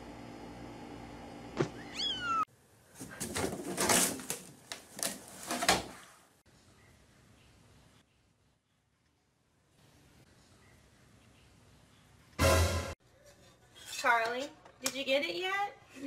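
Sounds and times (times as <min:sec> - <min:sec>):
cat meowing: 0:01.8 - 0:02.5
cat scrambling in hamper: 0:03.0 - 0:06.0.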